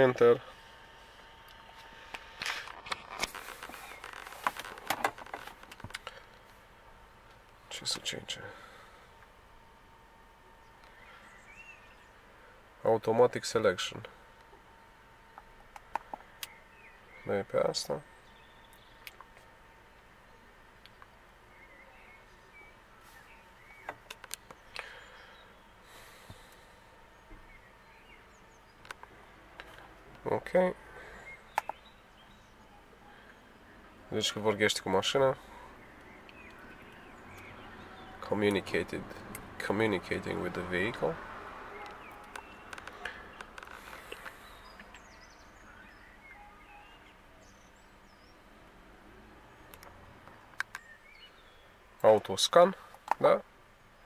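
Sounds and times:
handling clicks and rustles: 1.5s - 6.6s, 23.2s - 24.8s, 41.7s - 45.1s.

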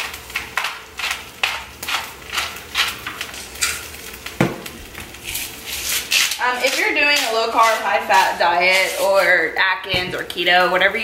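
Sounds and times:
seasoning shaker shakes: 0.0s - 3.9s, 5.0s - 9.6s.

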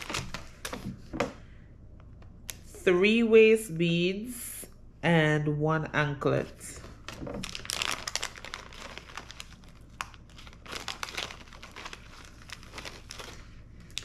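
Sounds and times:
plastic packaging crinkling: 0.0s - 1.2s, 6.8s - 14.0s.

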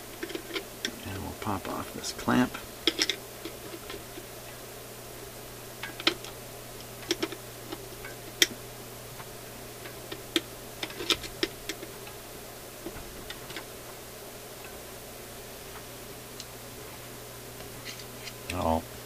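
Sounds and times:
metal tools clicking and tapping: 2.8s - 4.0s.

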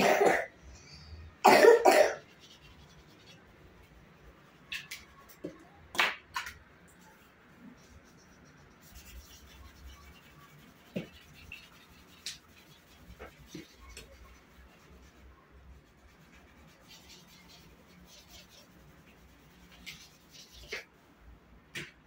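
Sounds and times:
pencil scratching on paper: 7.7s - 20.9s.

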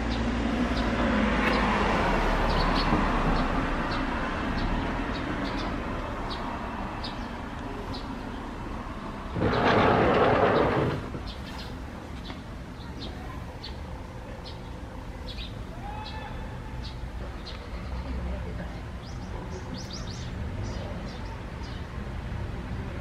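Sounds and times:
small birds chirping: 0.0s - 8.8s, 9.4s - 22.7s
loud rush of noise: 9.0s - 11.4s.

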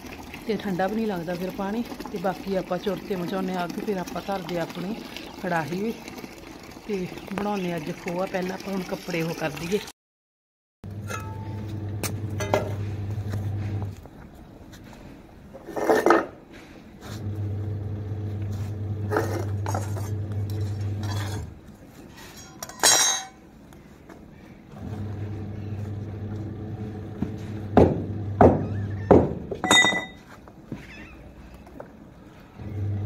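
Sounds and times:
washing machine motor humming: 10.9s - 13.9s, 17.2s - 21.4s, 24.8s - 29.1s, 32.6s - 33.0s
metal clinking on concrete: 22.3s - 23.4s, 29.6s - 30.3s.

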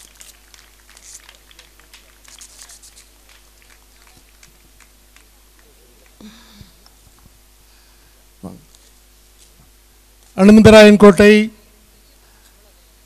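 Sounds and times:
gift wrap crinkling: 0.0s - 4.5s
steady electrical hum: 0.0s - 13.0s.

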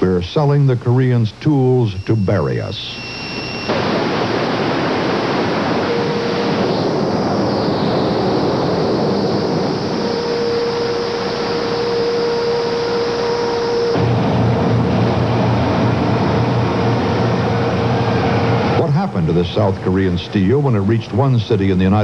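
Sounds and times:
faint steady hum: 0.0s - 22.0s
steel mill machinery rushing: 13.0s - 21.2s.

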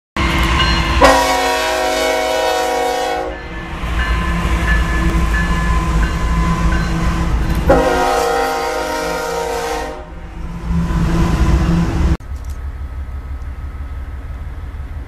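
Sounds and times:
moving train rumble: 0.2s - 15.0s
locomotive air horn blast: 1.0s - 3.4s, 7.6s - 10.2s.

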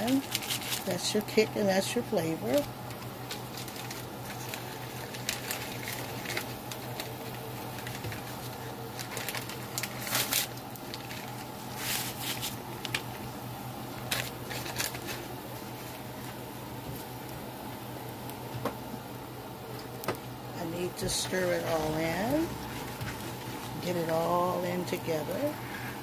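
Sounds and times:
packets rustling and crinkling: 0.0s - 0.9s, 2.8s - 13.2s, 14.0s - 16.4s, 21.5s - 24.3s
dry mix pattering: 0.0s - 26.0s
steady low hum: 0.0s - 26.0s.

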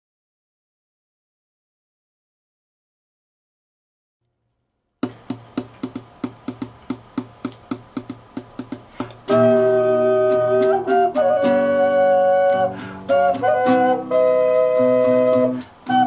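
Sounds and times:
fast plucked rhythmic strokes: 5.0s - 16.0s
double ocarina harmony: 9.3s - 16.0s.

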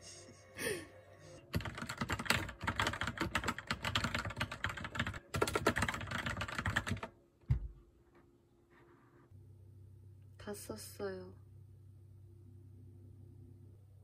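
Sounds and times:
fast typing on keyboard: 1.5s - 7.1s.

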